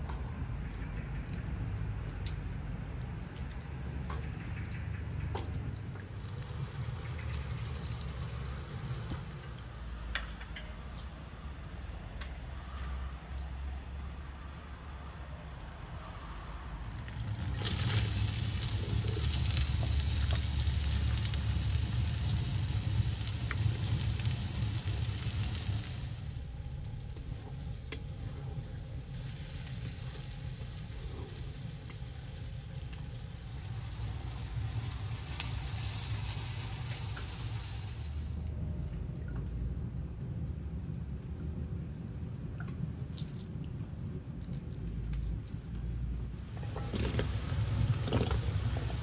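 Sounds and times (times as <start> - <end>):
low rumble: 14.0 - 49.0
food sizzling in a skillet: 17.6 - 26.4, 32.2 - 38.3.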